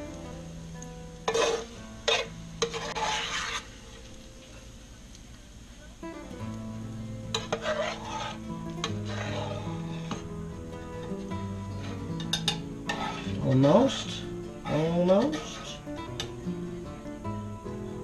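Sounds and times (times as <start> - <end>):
guitar music: 0.0 - 3.0, 6.0 - 18.0
metal spoon scraping skillet: 1.2 - 4.0, 7.3 - 10.3, 11.8 - 16.3.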